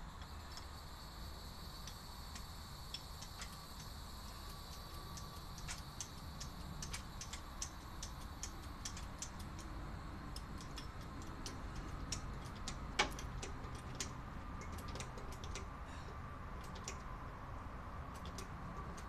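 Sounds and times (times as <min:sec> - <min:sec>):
car jack clicking: 0:10.3 - 0:17.2.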